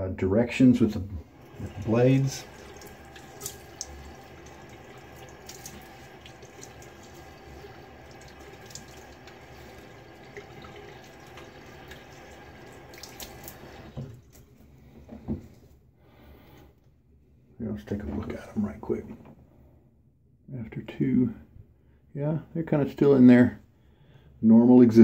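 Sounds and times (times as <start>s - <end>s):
sink tap running: 1.2s - 14.2s.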